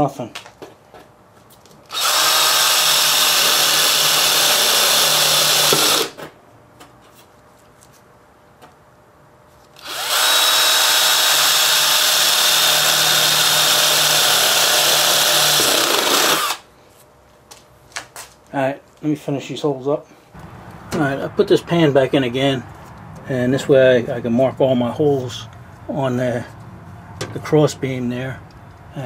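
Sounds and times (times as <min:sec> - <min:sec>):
electric drill cutting steel: 0:01.9 - 0:06.2, 0:09.8 - 0:16.6.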